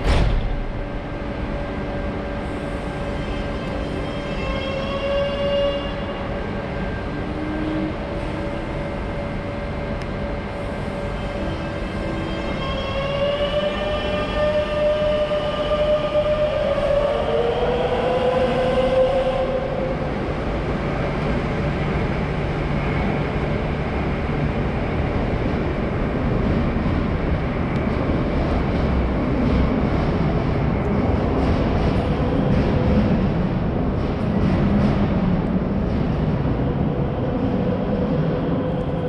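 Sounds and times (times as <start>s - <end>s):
train rumbling on track: 0.0s - 39.0s.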